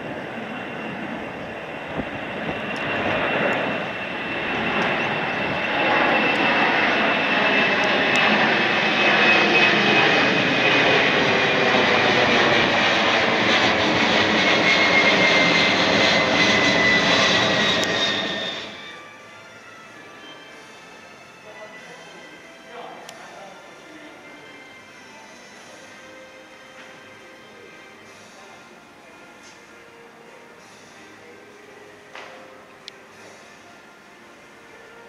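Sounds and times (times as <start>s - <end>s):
jet airliner engines overhead: 0.0s - 21.5s.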